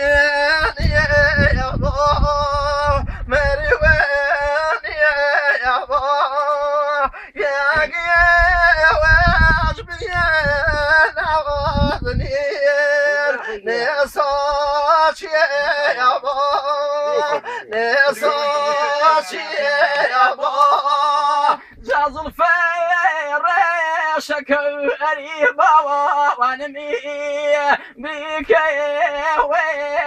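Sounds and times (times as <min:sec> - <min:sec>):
high voice singing: 0:00.0 - 0:30.0
low thuds: 0:07.5 - 0:13.1.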